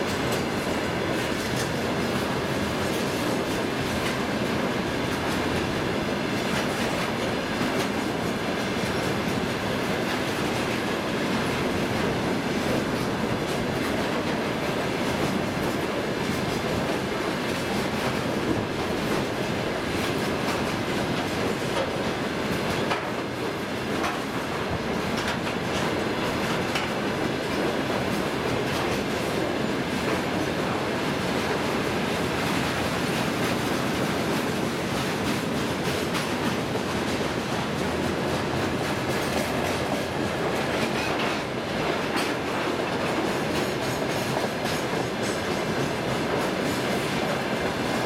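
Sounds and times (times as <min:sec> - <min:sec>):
train wheels rumbling on rails: 0:00.0 - 0:48.0
wheels clicking over rail joints: 0:20.0 - 0:24.3, 0:25.0 - 0:30.2.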